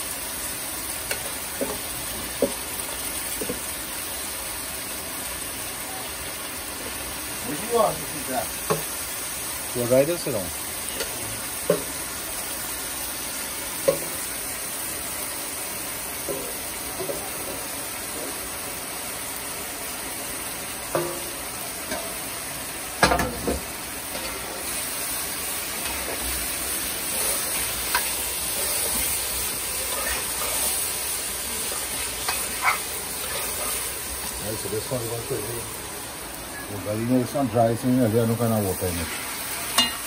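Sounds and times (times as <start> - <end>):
curry sizzling in a metal pot: 0.0 - 40.0.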